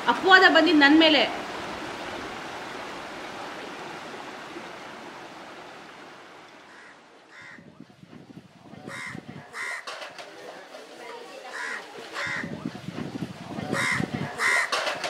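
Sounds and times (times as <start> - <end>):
running river water: 0.0 - 15.0
crows cawing: 6.7 - 7.7, 8.9 - 10.2, 11.5 - 12.5, 13.7 - 15.0.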